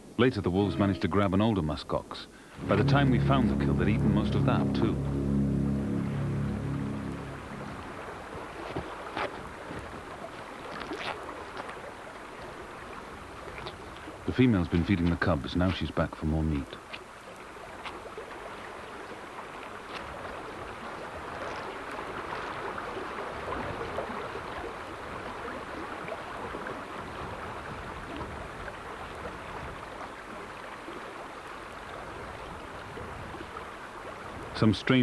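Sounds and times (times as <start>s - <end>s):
stream running over rocks: 7.2s - 35.0s.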